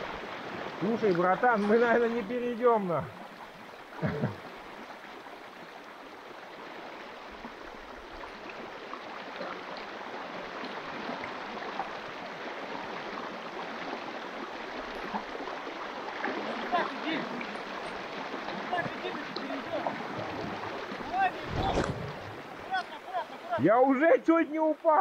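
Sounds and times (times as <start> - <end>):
river rushing: 0.0 - 23.7.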